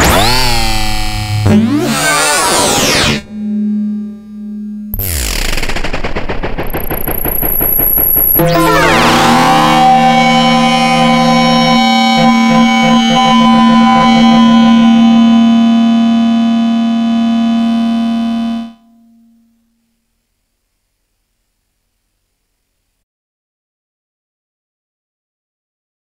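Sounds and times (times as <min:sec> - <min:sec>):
rhythmic synthesizer pulsing: 0:00.0 - 0:18.8
distorted synthesizer drone: 0:00.0 - 0:19.6.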